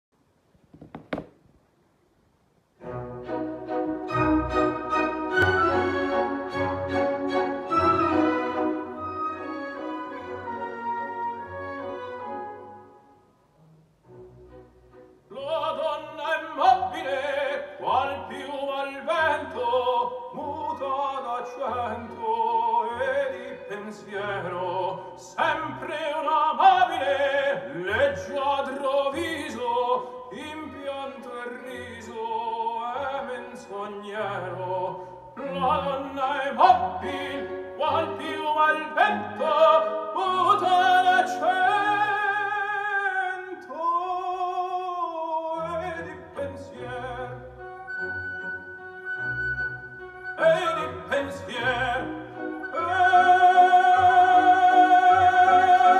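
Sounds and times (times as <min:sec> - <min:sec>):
operatic singing with orchestra: 0:02.8 - 0:12.5, 0:15.3 - 0:55.9.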